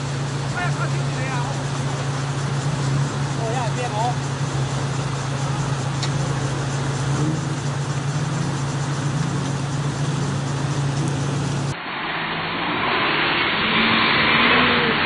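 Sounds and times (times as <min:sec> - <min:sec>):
bus engine: 0:00.0 - 0:15.0
vehicle engine running: 0:00.0 - 0:15.0.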